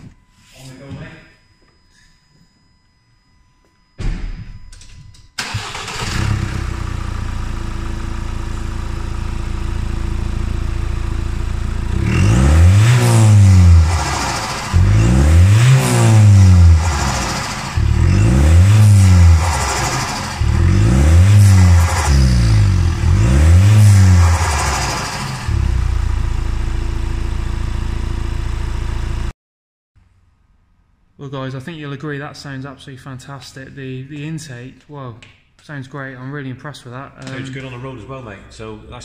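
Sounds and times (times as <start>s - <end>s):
diesel engine starting and idling: 5.4s - 29.3s
engine revving with intake noise: 5.6s - 29.3s.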